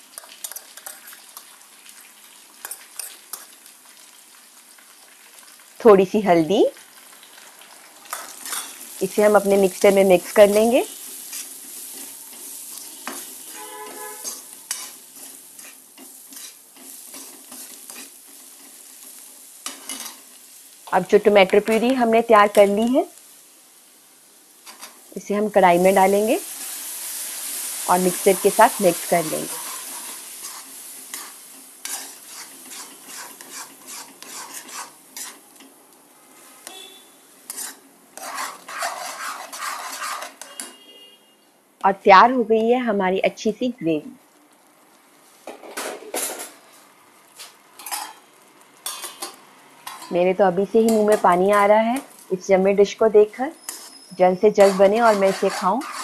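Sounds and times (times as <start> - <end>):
onions sizzling in hot oil: 0.0 - 40.9, 41.8 - 56.0
metal spatula scraping pan: 0.2 - 1.2, 8.1 - 8.9, 10.4 - 18.8, 19.6 - 20.2, 28.3 - 35.4, 36.7 - 41.0, 53.5 - 56.0.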